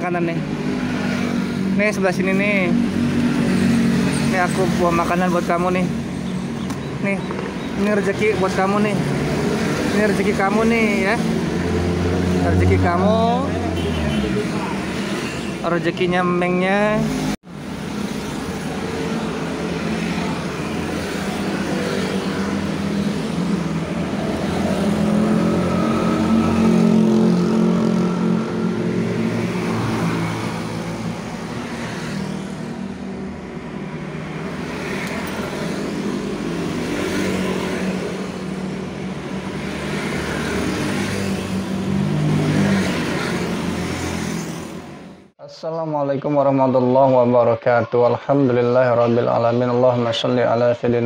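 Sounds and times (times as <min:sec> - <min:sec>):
cars driving past: 0:00.0 - 0:45.3.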